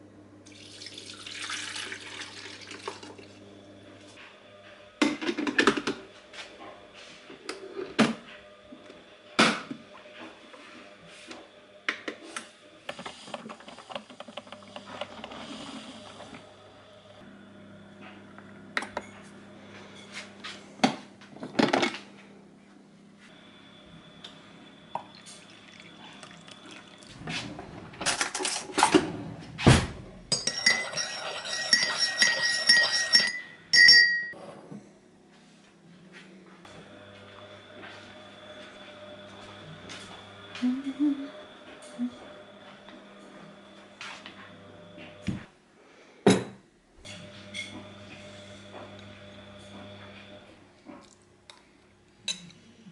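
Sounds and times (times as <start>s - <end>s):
coffee pouring into cup: 0.5s - 3.4s, 25.0s - 27.1s
glass carafe and porcelain clinking: 30.3s - 34.4s.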